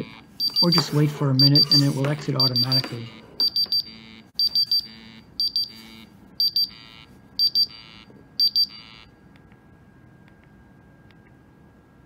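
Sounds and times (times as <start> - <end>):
gas monitor alarm beeping: 0.0 - 9.1.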